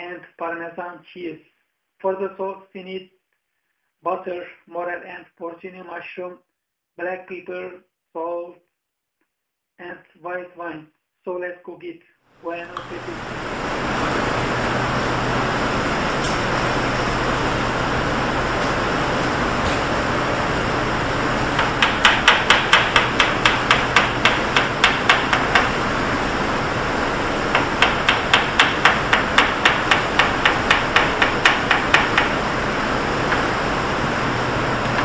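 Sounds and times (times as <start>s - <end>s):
knife chopping on plastic board: 21.6s - 25.7s.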